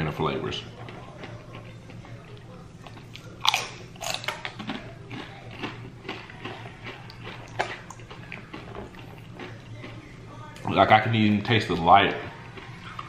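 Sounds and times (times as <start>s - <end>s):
chewing crunches: 0.7s - 10.7s, 12.1s - 13.0s
chip bitten with a crunch: 2.8s - 10.0s.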